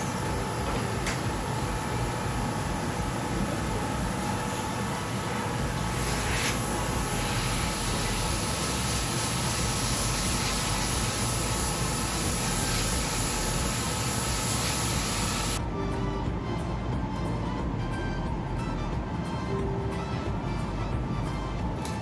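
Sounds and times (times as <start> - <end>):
steady airy hiss: 0.0 - 15.6.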